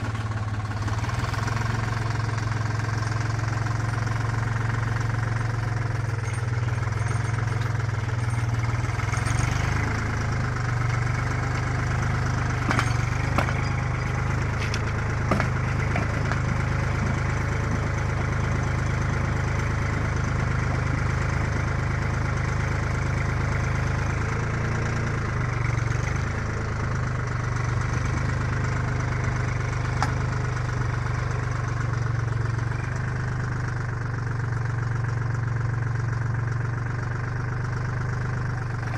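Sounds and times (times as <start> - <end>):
earth auger boring into soil: 0.0 - 33.4, 38.1 - 38.9
tractor engine running: 0.0 - 38.9.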